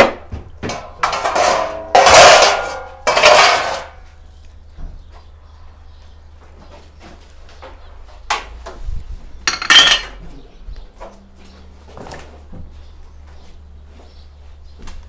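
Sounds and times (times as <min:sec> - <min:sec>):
dishes and glassware clinking: 0:09.5 - 0:10.2.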